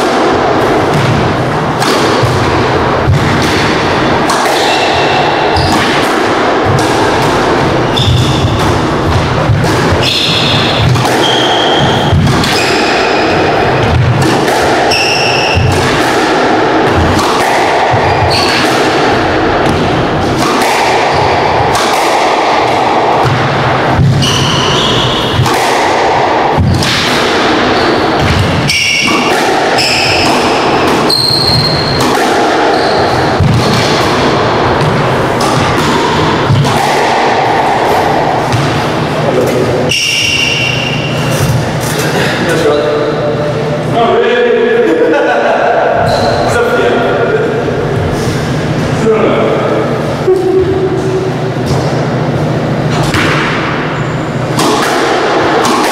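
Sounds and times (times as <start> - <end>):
squash ball thudding: 0.0 - 41.9, 50.6 - 55.9.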